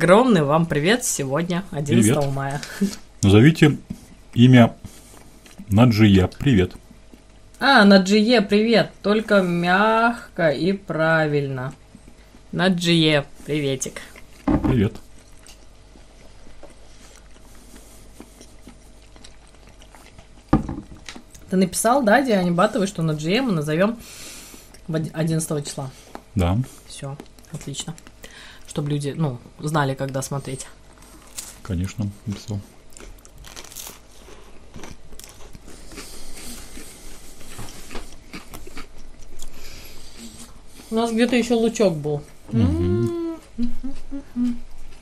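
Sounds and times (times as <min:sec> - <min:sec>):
low steady hum: 0:00.0 - 0:45.0
soft eating sounds: 0:00.4 - 0:07.6, 0:09.1 - 0:45.0
biting and chewing crisp bread: 0:14.0 - 0:21.5, 0:30.8 - 0:41.4.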